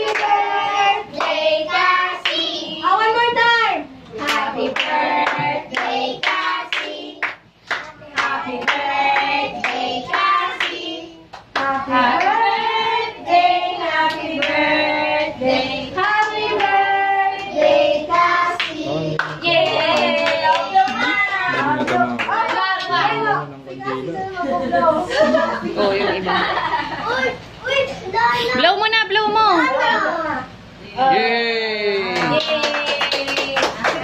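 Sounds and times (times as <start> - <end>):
hands clapping: 18.6 - 23.0, 32.2 - 34.0.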